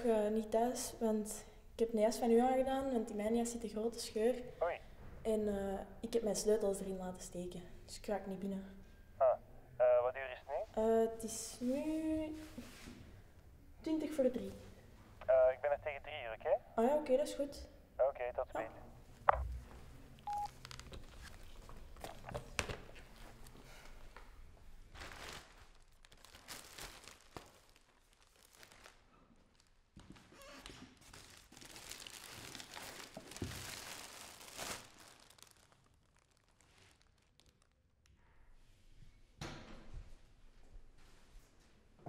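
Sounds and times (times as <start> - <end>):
plastic bag rustling: 24.9 - 30.3, 31.0 - 37.8.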